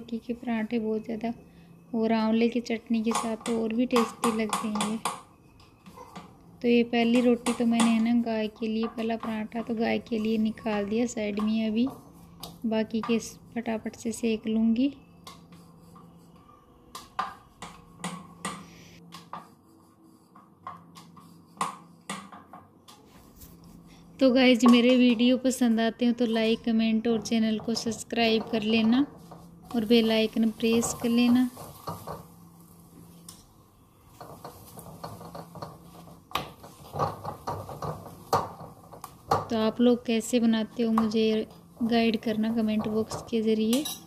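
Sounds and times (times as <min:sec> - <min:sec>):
kitchen utensils clicking and tapping: 0:02.6 - 0:13.4, 0:24.3 - 0:25.6, 0:26.3 - 0:32.3, 0:34.2 - 0:44.0
spoon scraping iron griddle: 0:26.2 - 0:32.3, 0:34.2 - 0:39.4.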